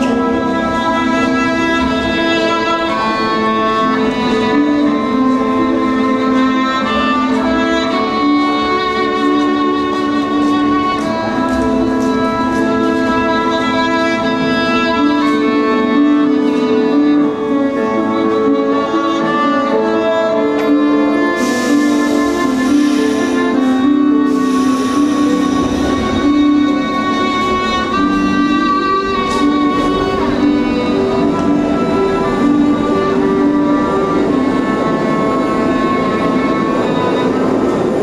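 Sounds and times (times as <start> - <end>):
bowed cello melody: 0.0 - 38.0
hiss: 21.4 - 23.6, 24.3 - 26.0.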